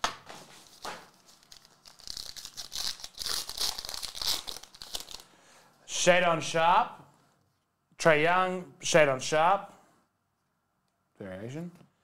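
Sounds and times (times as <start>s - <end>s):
foil wrapper tearing and crinkling: 0.6s - 5.3s.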